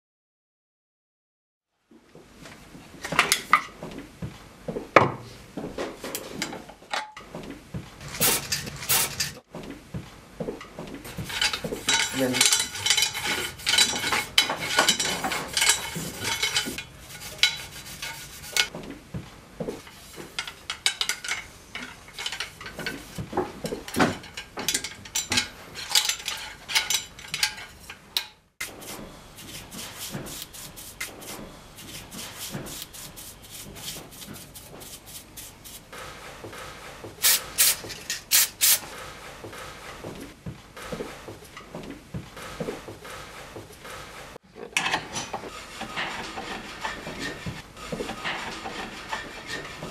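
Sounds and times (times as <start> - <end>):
brush scraping inside gun barrels: 11.1 - 18.7
aerosol spray hissing: 37.2 - 38.8.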